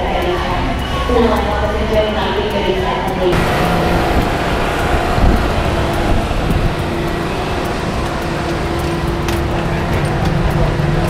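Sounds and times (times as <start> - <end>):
airliner and machinery drone: 0.0 - 11.0
constant whine: 3.3 - 11.0.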